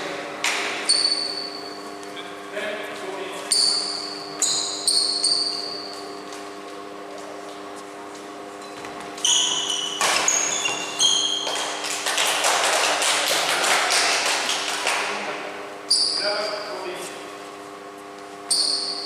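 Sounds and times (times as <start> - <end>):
steady low hum: 0.0 - 19.0
shoes squeaking on court floor: 0.8 - 11.9, 15.9 - 17.4, 18.0 - 19.0.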